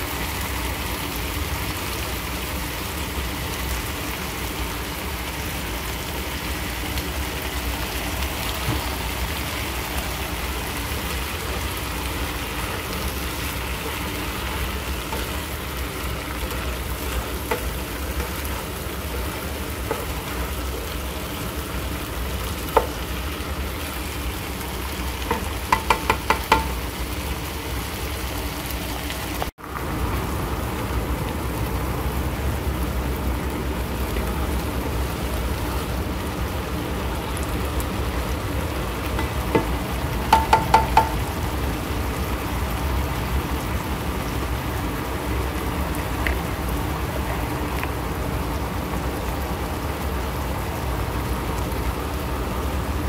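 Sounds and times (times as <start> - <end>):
vegetables sizzling in skillet: 0.0 - 53.0
spatula clicking on pan: 25.2 - 26.8, 39.2 - 41.2.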